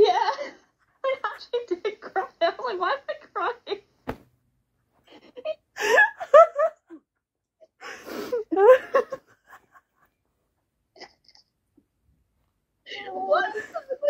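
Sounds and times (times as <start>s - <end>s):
woman laughing: 5.1s - 7.0s, 8.4s - 9.8s, 13.3s - 14.0s.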